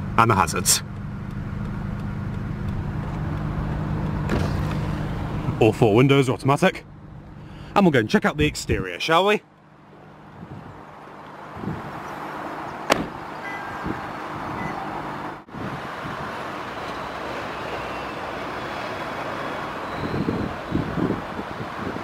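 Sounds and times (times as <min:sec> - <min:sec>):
car door shutting: 0:04.0 - 0:05.3, 0:12.8 - 0:13.2
wind rumbling on microphone: 0:10.2 - 0:12.2, 0:13.0 - 0:14.8, 0:15.5 - 0:16.4, 0:19.9 - 0:22.0.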